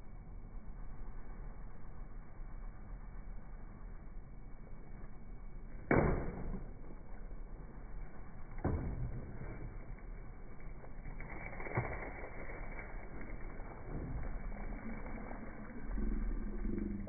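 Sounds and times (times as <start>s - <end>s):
club striking: 5.9s - 6.7s.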